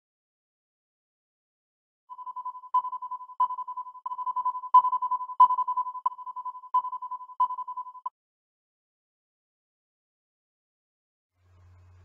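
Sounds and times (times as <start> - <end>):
fluttering electronic beep: 2.1 - 8.1.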